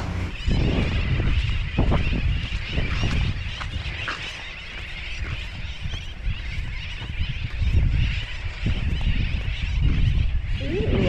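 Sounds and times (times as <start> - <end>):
many birds chattering: 0.0 - 11.0
wind buffeting microphone: 0.0 - 11.0.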